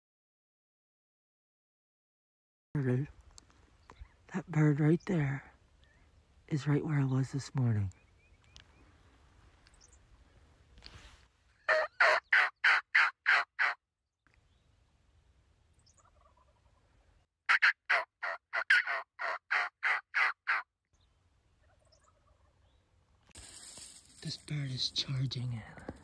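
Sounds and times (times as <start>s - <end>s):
turkey call yelps: 11.6s - 13.8s, 15.9s - 16.8s, 17.5s - 20.7s, 21.6s - 22.6s.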